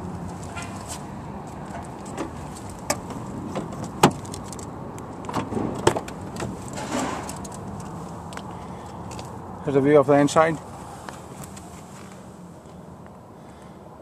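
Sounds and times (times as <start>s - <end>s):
car door clicks and knocks: 2.1s - 4.4s, 5.2s - 6.6s.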